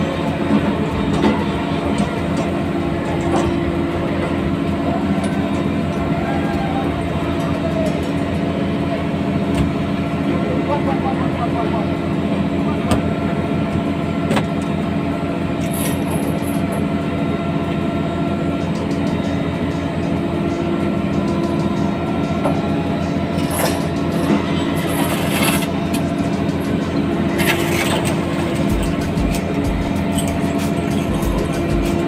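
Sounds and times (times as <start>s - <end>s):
boat engine droning: 0.0s - 32.0s.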